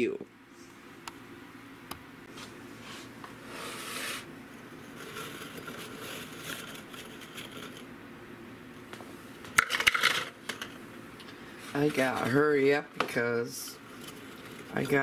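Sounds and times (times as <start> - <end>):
dry cookies rustling in a mug: 4.8 - 7.9, 13.8 - 15.0.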